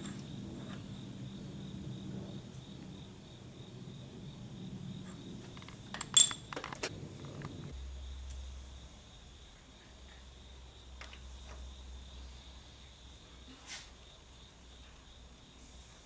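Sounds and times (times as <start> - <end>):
low hum: 0.0 - 12.8
sharp metallic clinks: 5.6 - 6.6.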